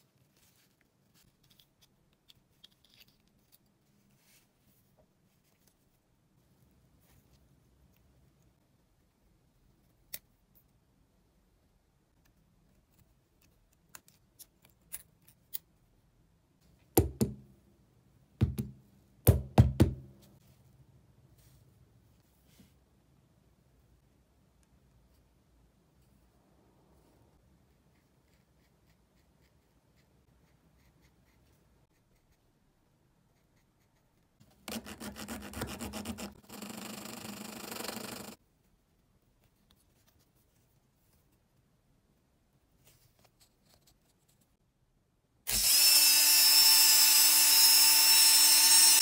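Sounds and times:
metal file rasping on metal: 34.7 - 36.5.

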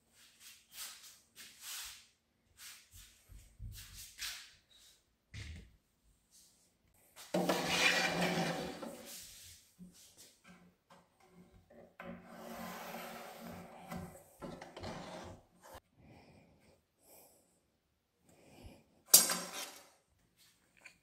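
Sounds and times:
wood scraping on plywood: 7.3 - 9.5, 12.0 - 15.8.

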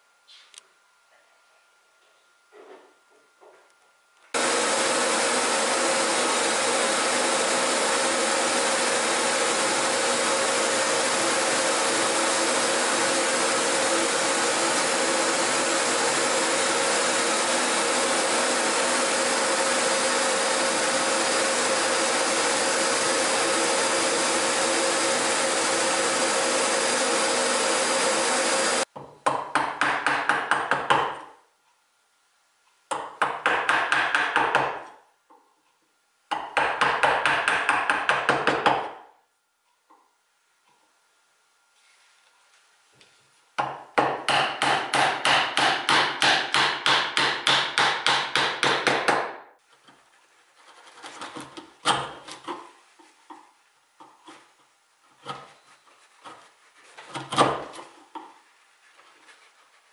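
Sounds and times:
drill press boring wood: 4.4 - 28.9
dust extraction vacuum: 4.4 - 28.9
chisel knocking: 28.9 - 31.3, 32.9 - 34.9, 43.6 - 49.4.

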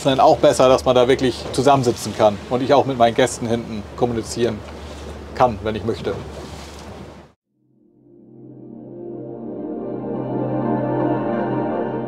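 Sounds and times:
ambient synth music: 7.6 - 12.0.

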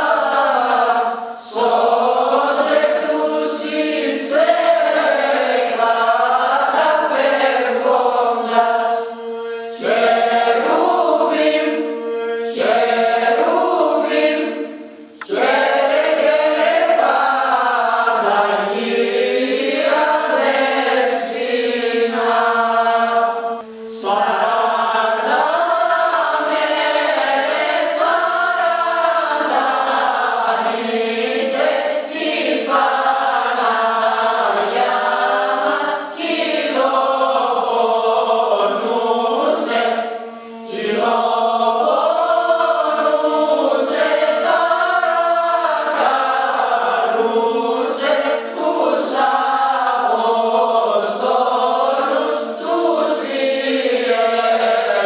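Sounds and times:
women's choir singing unaccompanied: 0.0 - 55.0.

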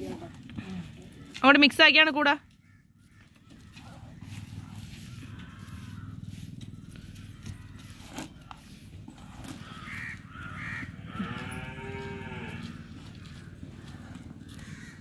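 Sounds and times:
drawn-out animal call: 0.0 - 15.0.

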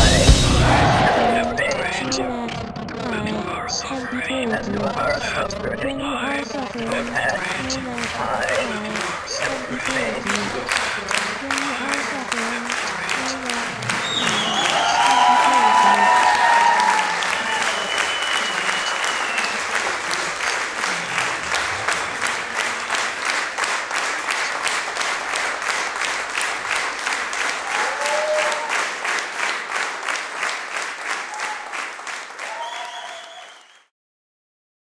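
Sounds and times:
voices calling out: 0.0 - 21.4
audience rhythmic clapping: 0.0 - 33.9.

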